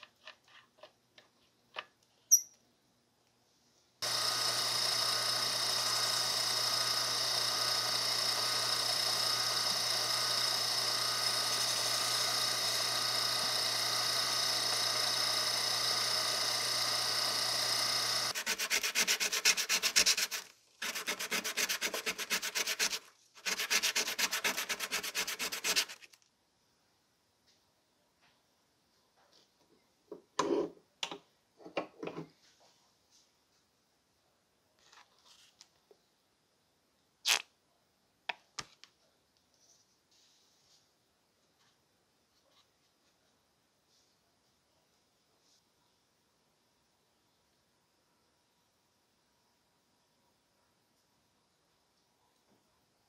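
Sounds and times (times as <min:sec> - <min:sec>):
drill press motor running: 0:04.0 - 0:26.0
sandpaper rubbing wood: 0:18.3 - 0:26.1.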